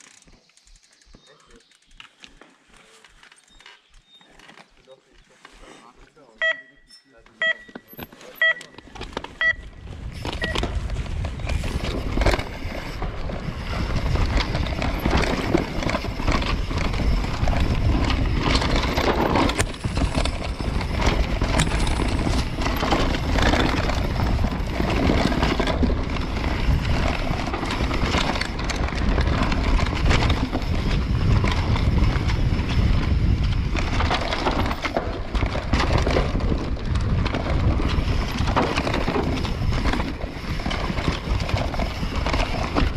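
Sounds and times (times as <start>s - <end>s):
tyres on dirt: 0.0s - 42.9s
electronic timer beeps: 6.4s - 8.8s, 9.4s - 9.8s
bike knocks and rattles: 7.6s - 42.9s
wind rushing over microphone: 9.5s - 42.9s.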